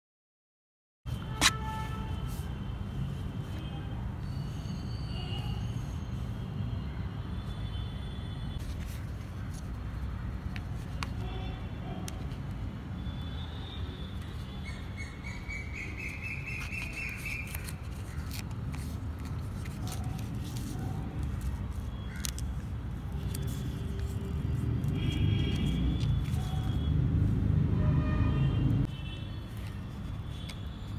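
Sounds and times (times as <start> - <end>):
sticker label peeling and crinkling: 16.1 - 26.9.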